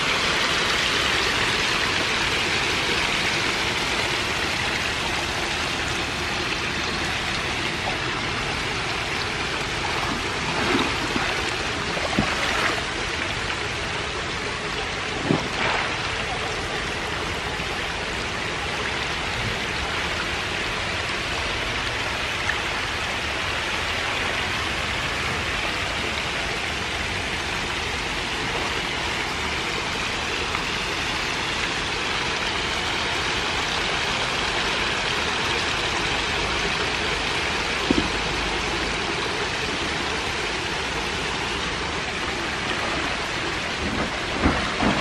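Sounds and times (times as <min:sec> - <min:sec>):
fish splashing at water surface: 0:07.8 - 0:13.4, 0:14.9 - 0:16.7.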